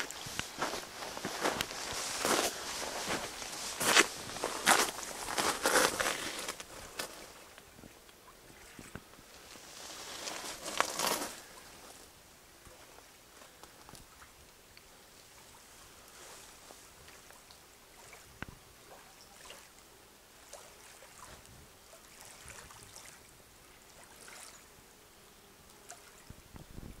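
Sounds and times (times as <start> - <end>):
small waves lapping on pebbles: 0.0 - 7.7, 20.4 - 24.7.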